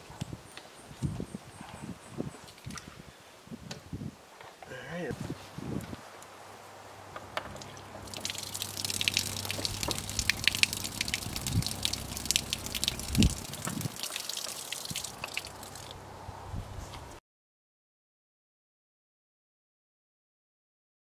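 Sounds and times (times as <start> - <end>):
water pouring and splattering: 7.2 - 16.0.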